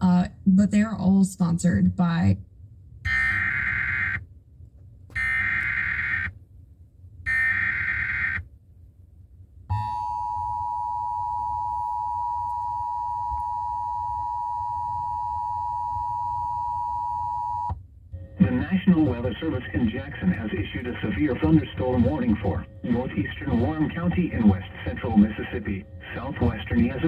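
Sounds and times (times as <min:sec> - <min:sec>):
data bursts from radio: 0:18.4 - 0:27.0.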